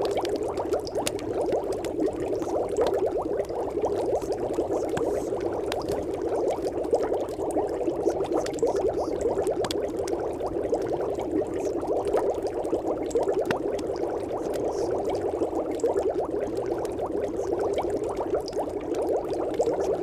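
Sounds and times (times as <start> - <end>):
dense bubbling: 0.0 - 20.0.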